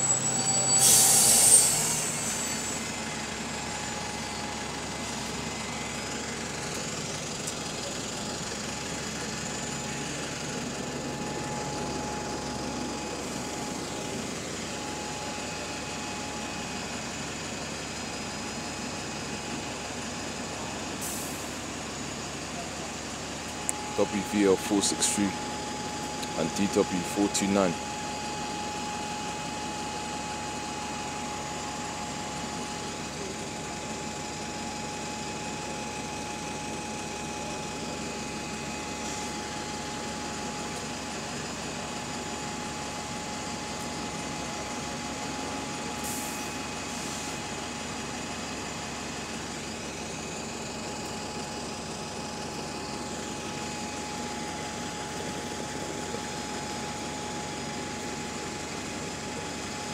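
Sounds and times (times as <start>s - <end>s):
bus engine idling: 0.0s - 59.9s
air hissing: 0.7s - 2.9s.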